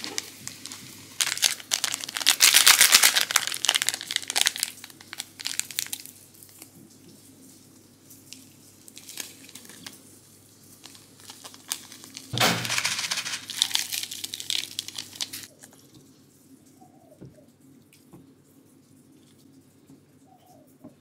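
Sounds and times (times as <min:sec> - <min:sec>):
foil sachet ripping open: 0:00.0 - 0:06.7, 0:08.4 - 0:15.5
foil sachet crinkling: 0:00.0 - 0:07.0, 0:08.1 - 0:15.6.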